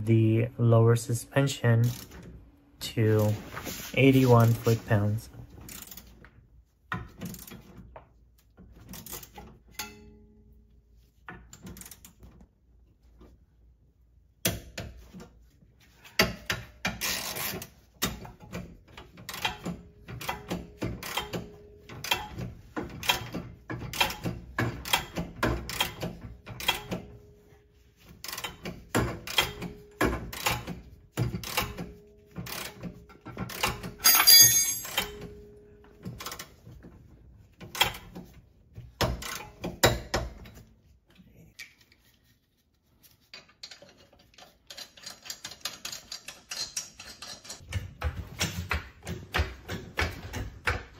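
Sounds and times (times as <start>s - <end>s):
metal clatter: 33.6s - 35.2s.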